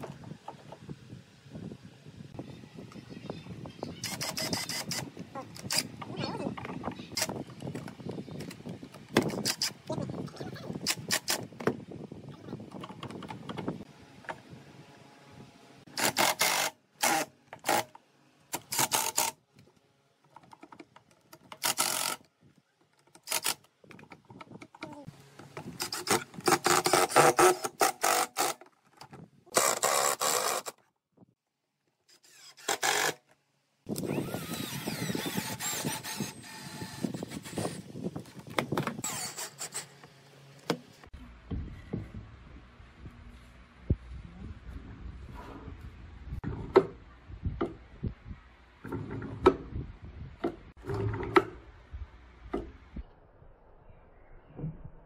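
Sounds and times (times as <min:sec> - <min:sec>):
cordless drill motor whine: 0:33.9 - 0:37.9, 0:39.0 - 0:39.8.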